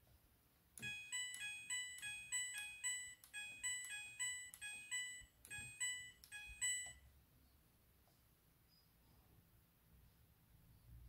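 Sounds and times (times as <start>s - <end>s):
washing machine panel beeps: 0.8s - 7.0s.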